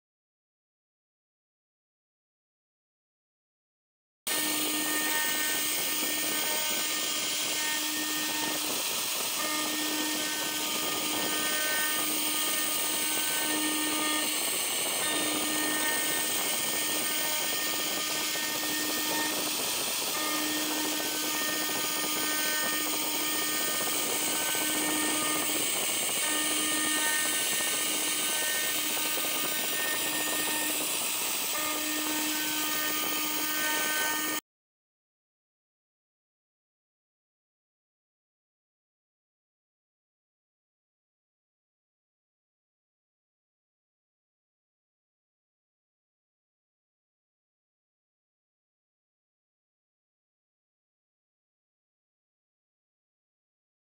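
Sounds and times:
higher machine tones: 0:04.3 - 0:34.4
router spindle cutting metal: 0:04.3 - 0:34.4.

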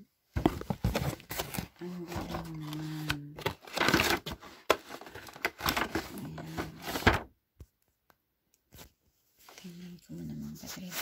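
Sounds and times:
packaging rustling and clicking: 0:00.4 - 0:07.3.

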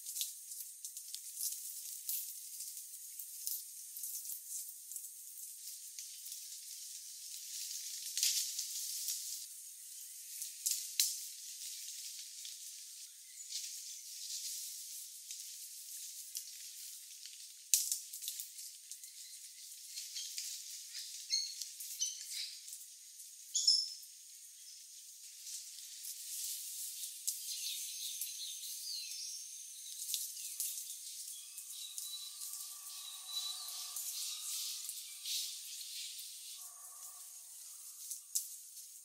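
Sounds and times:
scattered crackles: 0:00.0 - 0:23.3, 0:24.8 - 0:27.5, 0:29.9 - 0:39.0
high-pitched hiss: 0:25.8 - 0:39.0.

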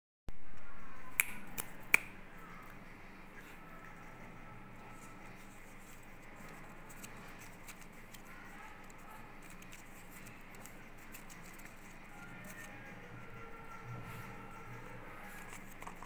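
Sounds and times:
fingers handling plastic egg: 0:04.8 - 0:13.3, 0:14.8 - 0:16.0.

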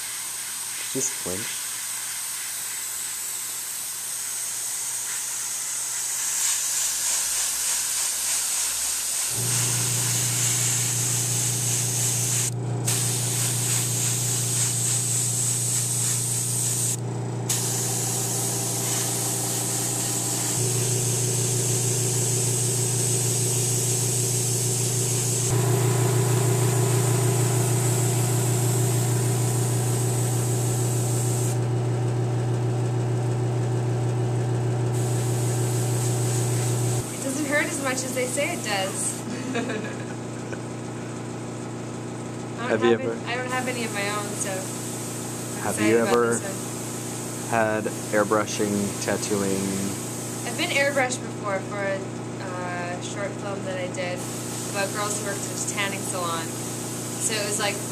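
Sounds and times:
airbrush spraying hiss: 0:00.0 - 0:25.6, 0:26.7 - 0:31.6, 0:35.0 - 0:39.3, 0:43.7 - 0:45.8, 0:46.4 - 0:51.1, 0:54.2 - 0:57.9
compressor humming: 0:09.3 - 0:57.9.

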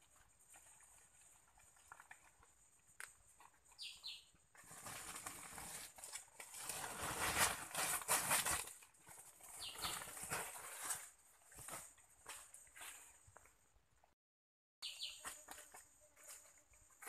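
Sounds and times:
dry leaves rustling and crackling: 0:04.6 - 0:13.1.

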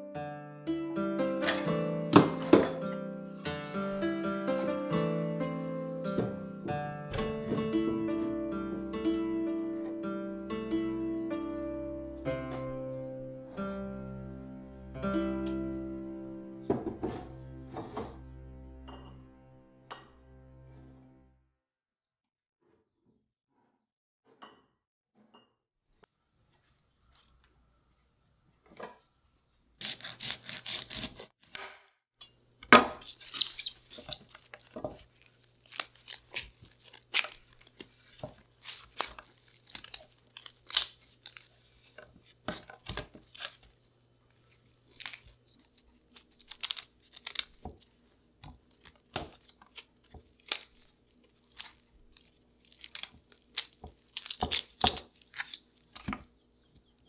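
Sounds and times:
bamboo shoots tearing and snapping: 0:29.8 - 0:31.6, 0:33.0 - 0:42.0, 0:42.6 - 0:48.0, 0:48.6 - 0:56.2.

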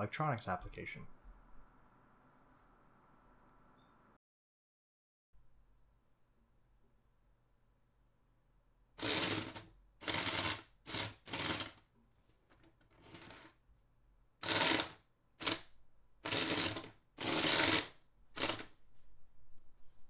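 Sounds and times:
small gear motor running: 0:09.0 - 0:11.7, 0:14.4 - 0:15.6.

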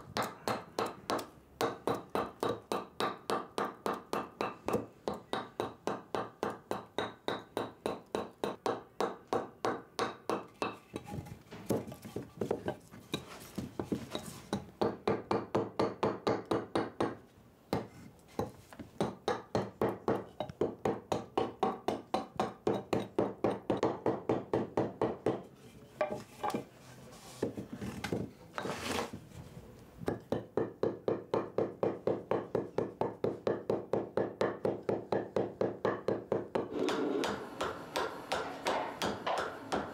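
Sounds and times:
hand tool working wood: 0:10.5 - 0:14.7, 0:25.4 - 0:29.4, 0:36.5 - 0:39.9.

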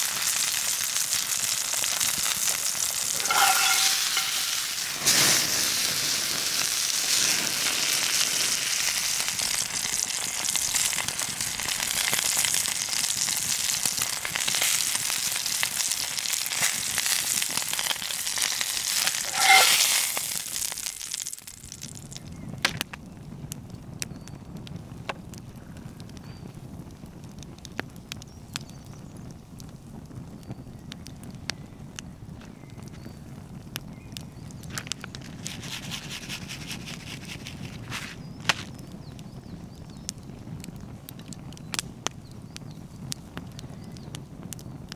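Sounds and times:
steak sizzling in a pan: 0:00.0 - 0:21.9
wood fire crackling and popping: 0:00.0 - 0:44.9.

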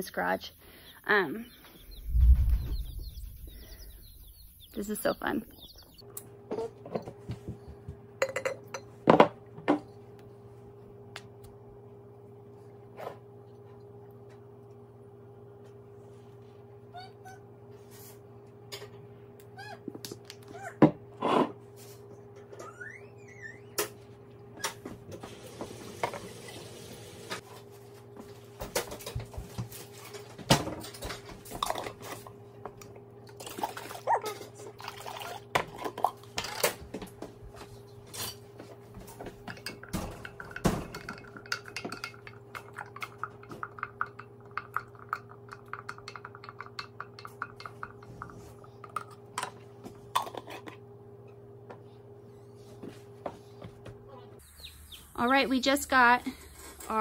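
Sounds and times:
spoon tapping inside glass jar: 0:40.5 - 0:48.1.

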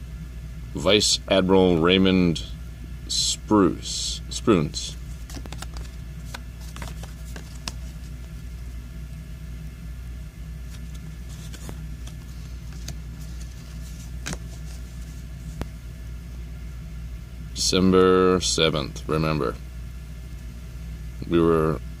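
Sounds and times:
low background hum: 0:00.0 - 0:22.0
trading cards clicking and rustling: 0:04.9 - 0:08.5, 0:10.6 - 0:15.7.

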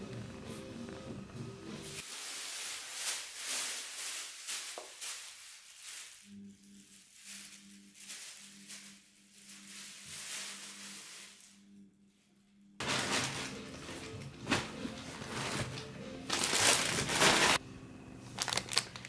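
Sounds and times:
plastic bag crinkling: 0:02.0 - 0:11.6, 0:12.8 - 0:17.6, 0:18.3 - 0:19.0.

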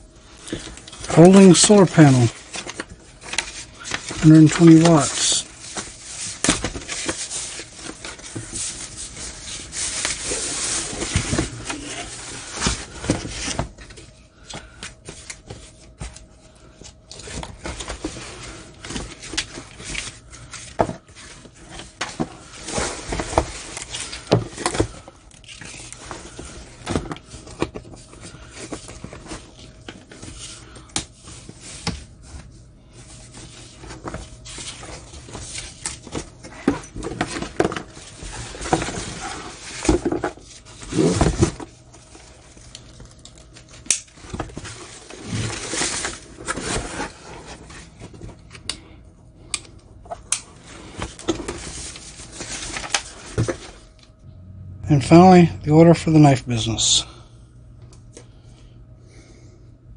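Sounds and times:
foam packing wrap rustling: 0:00.3 - 0:16.3, 0:33.1 - 0:48.4, 0:50.5 - 0:54.0.

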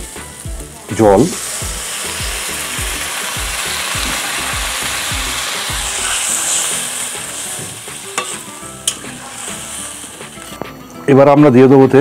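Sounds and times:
water hissing in hot pan: 0:00.0 - 0:10.8
metal spatula knocking pan: 0:08.2 - 0:09.1.

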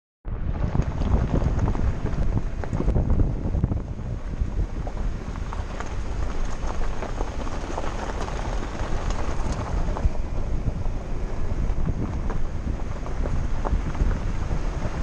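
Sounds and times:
vehicle engine rumble: 0:00.2 - 0:15.0
wind buffeting microphone: 0:00.2 - 0:15.0
tyres on gravel: 0:00.4 - 0:15.0
small stones ticking: 0:04.7 - 0:11.0.

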